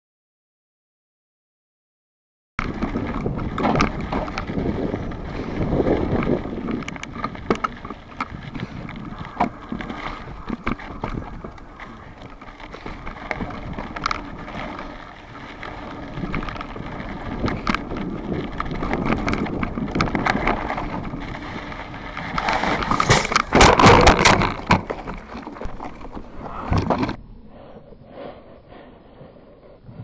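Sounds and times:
bike crashing clatter: 2.6s - 25.7s
bike tire rolling on gravel: 2.6s - 27.2s.

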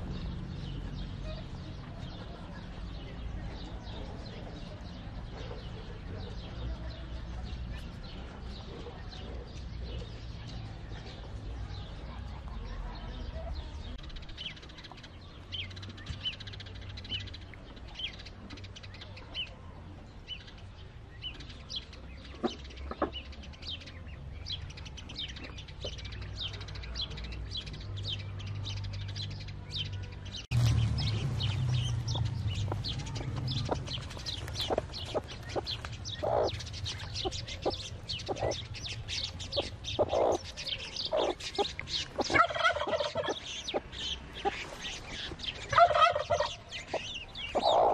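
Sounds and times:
chicks peeping: 30.5s - 47.9s.

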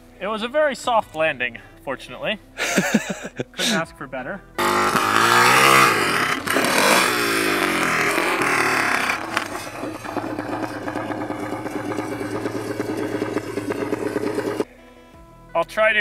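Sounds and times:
engine revving: 4.6s - 14.7s.

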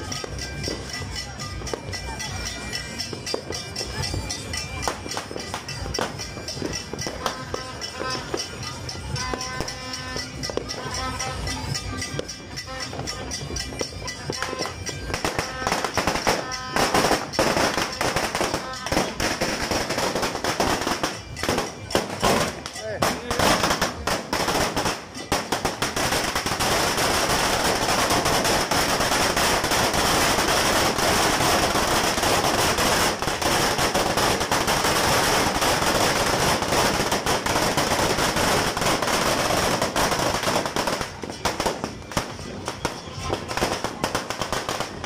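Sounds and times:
firecrackers crackling and banging: 0.0s - 45.0s.

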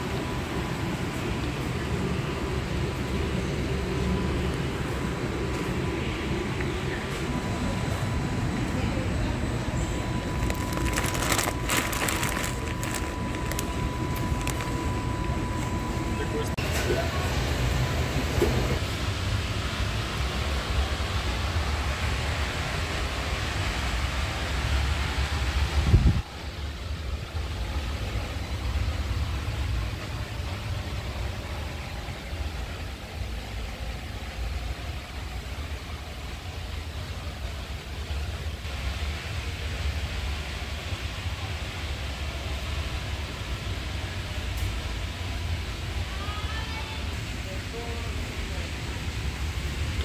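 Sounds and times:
low background rumble: 0.0s - 16.5s
warehouse store background noise: 0.0s - 18.9s
plastic bags crinkling: 10.3s - 15.0s.

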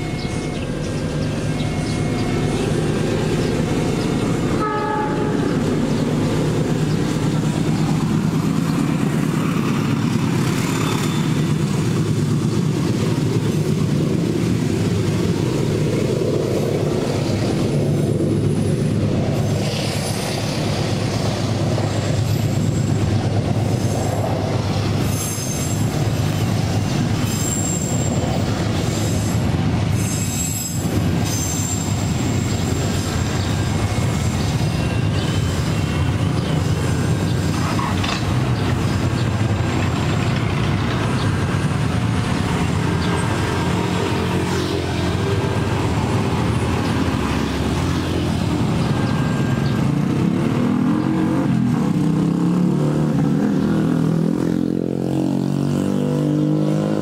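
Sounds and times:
high wheel squeals: 0.0s - 52.4s
freight train rumbling past: 0.0s - 57.0s
train wheel clatter: 6.0s - 50.4s.

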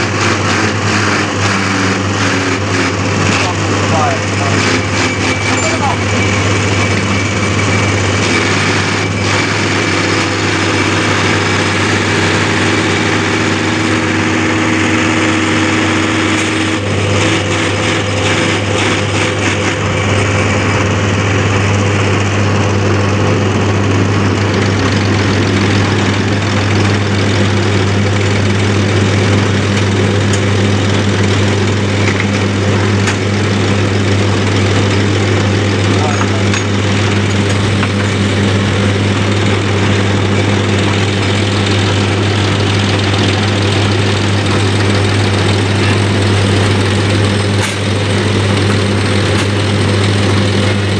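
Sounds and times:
test bench motor humming: 0.0s - 50.9s
higher tone: 19.0s - 49.4s.

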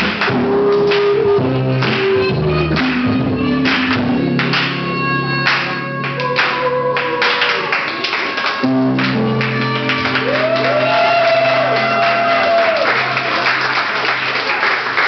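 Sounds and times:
swing jazz music: 0.0s - 11.0s.

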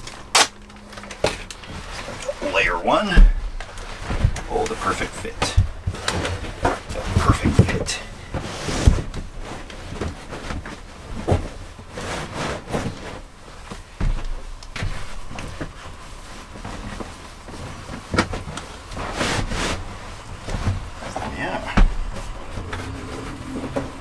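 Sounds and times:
footsteps: 1.7s - 24.0s
furniture knocking and thumping: 3.0s - 4.5s, 12.6s - 15.8s, 20.4s - 24.0s.

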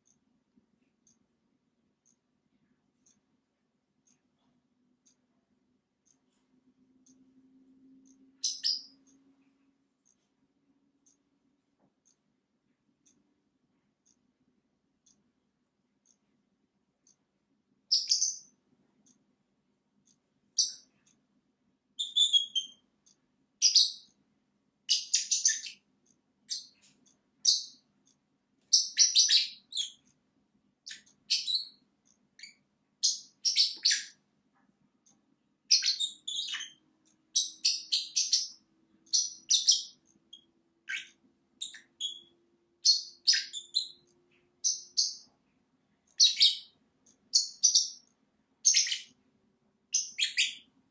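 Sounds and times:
lovebirds chirping: 8.3s - 9.2s, 17.9s - 18.5s, 20.5s - 21.0s, 22.0s - 22.8s, 23.6s - 24.2s, 24.9s - 25.9s, 26.5s - 27.9s, 28.6s - 30.1s, 30.8s - 31.8s, 32.4s - 34.2s, 35.6s - 45.3s, 46.0s - 49.2s, 49.9s - 50.7s.

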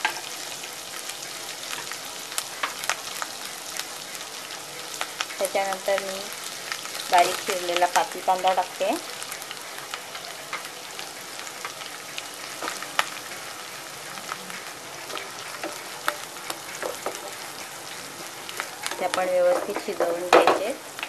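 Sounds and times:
onions sizzling in oil: 0.0s - 21.0s
wooden spatula stirring: 15.0s - 20.6s.

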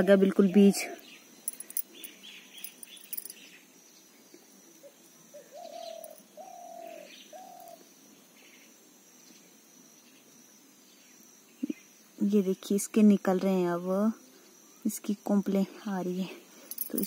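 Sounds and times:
faint small-bird chirps: 0.1s - 12.7s
dove cooing: 5.3s - 7.8s.

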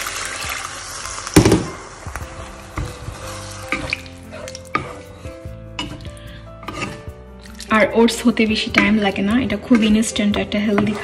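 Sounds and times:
water splashing into hot pan: 0.0s - 4.1s
light sizzle: 0.0s - 4.8s
spatula scraping pan: 2.8s - 7.2s, 8.0s - 11.0s.

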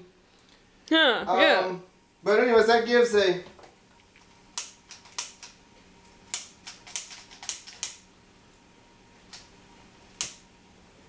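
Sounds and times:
lighter clicking: 10.2s - 10.5s.

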